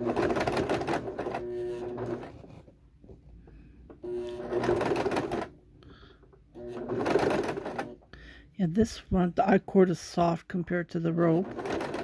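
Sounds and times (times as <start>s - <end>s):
sewing machine stitching: 0.0s - 2.6s, 4.0s - 5.6s, 6.5s - 8.0s, 11.1s - 12.0s.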